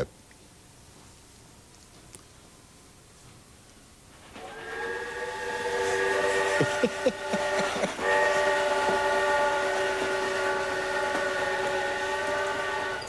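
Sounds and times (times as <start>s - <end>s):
model train whistle: 4.4s - 13.0s.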